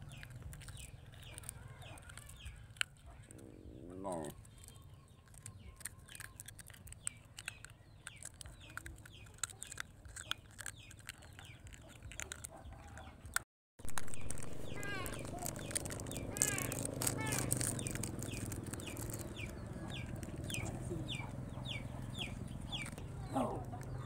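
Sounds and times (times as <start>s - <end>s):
chickens clucking: 0.7s - 4.3s, 14.0s - 24.0s.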